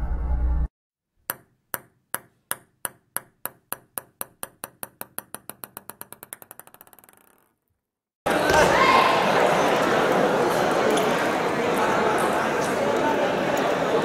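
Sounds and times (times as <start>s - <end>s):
table tennis ball bouncing: 1.2s - 7.6s.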